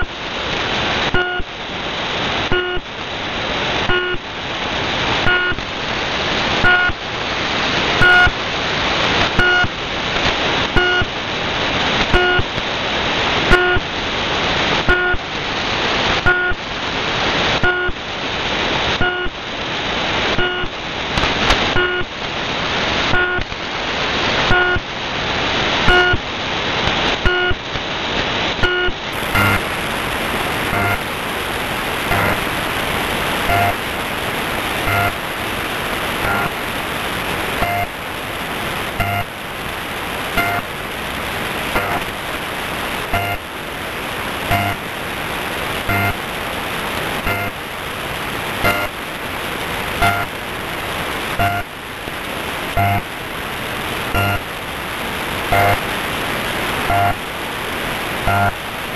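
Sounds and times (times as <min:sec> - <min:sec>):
radio static: 0:00.0 - 0:00.2, 0:01.0 - 0:01.6, 0:02.3 - 0:03.0, 0:03.7 - 0:04.4, 0:05.2 - 0:05.8, 0:06.4 - 0:07.1, 0:07.9 - 0:11.2, 0:11.8 - 0:12.8, 0:13.4 - 0:19.4, 0:20.2 - 0:25.0, 0:25.7 - 0:58.9
low buzzer-like tones: 0:01.1 - 0:01.5, 0:02.5 - 0:02.8, 0:03.9 - 0:04.2, 0:05.2 - 0:05.6, 0:06.6 - 0:07.0, 0:08.0 - 0:08.4, 0:09.4 - 0:09.7, 0:10.8 - 0:11.1, 0:12.1 - 0:12.5, 0:14.9 - 0:15.3, 0:16.2 - 0:16.6, 0:17.6 - 0:18.0, 0:19.0 - 0:19.4, 0:20.4 - 0:20.7, 0:21.8 - 0:22.1, 0:23.1 - 0:23.4, 0:24.5 - 0:24.8, 0:25.9 - 0:26.2, 0:28.6 - 0:31.1, 0:32.0 - 0:32.5, 0:33.4 - 0:33.9, 0:34.8 - 0:35.2, 0:36.2 - 0:36.5, 0:37.6 - 0:37.9, 0:39.0 - 0:39.3, 0:40.4 - 0:40.7, 0:41.7 - 0:42.0, 0:43.1 - 0:43.4, 0:44.5 - 0:44.8, 0:45.9 - 0:46.2, 0:47.2 - 0:47.6, 0:48.6 - 0:49.0, 0:50.0 - 0:50.3, 0:51.4 - 0:51.7, 0:52.8 - 0:53.1, 0:54.1 - 0:54.5, 0:55.5 - 0:55.8, 0:56.8 - 0:57.2, 0:58.2 - 0:58.6
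short radio beeps: 0:01.2 - 0:01.5, 0:08.0 - 0:08.4, 0:09.4 - 0:09.7, 0:10.8 - 0:11.1, 0:20.4 - 0:20.7, 0:25.9 - 0:26.2, 0:28.6 - 0:29.6, 0:30.7 - 0:31.0, 0:32.1 - 0:32.4, 0:33.5 - 0:33.8, 0:34.9 - 0:35.2, 0:36.3 - 0:36.5, 0:37.6 - 0:37.9, 0:39.0 - 0:39.3, 0:40.4 - 0:40.6, 0:41.8 - 0:42.0, 0:43.2 - 0:43.4, 0:44.5 - 0:44.8, 0:45.9 - 0:46.2, 0:47.3 - 0:47.5, 0:48.6 - 0:48.9, 0:50.0 - 0:50.3, 0:51.4 - 0:51.6, 0:52.8 - 0:53.0, 0:55.5 - 0:55.8, 0:56.9 - 0:57.2, 0:58.3 - 0:58.6.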